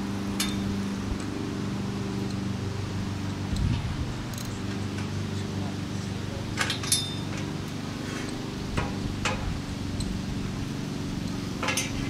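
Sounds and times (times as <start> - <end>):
steady low hum: 0.0 - 12.0
metallic clinks and clicks: 4.3 - 4.6, 6.6 - 7.4.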